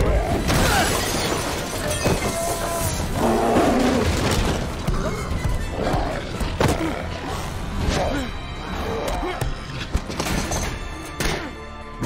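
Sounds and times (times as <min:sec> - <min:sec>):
debris shattering: 0:00.3 - 0:05.7
cabinet smashing crash: 0:00.4 - 0:02.6.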